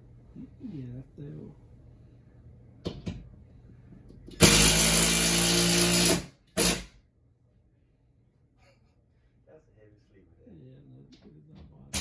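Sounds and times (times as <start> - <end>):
cordless drill running: 4.4 - 6.8.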